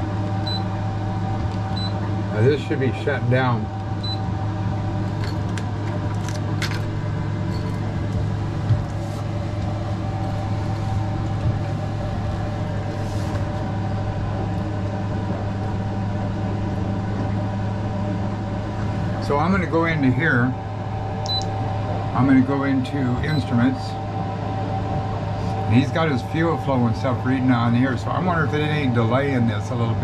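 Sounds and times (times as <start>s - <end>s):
outboard engine droning: 0.0s - 30.0s.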